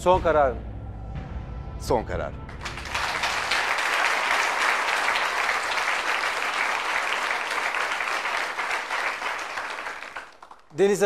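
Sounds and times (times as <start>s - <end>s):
audience applauding: 2.5s - 11.0s.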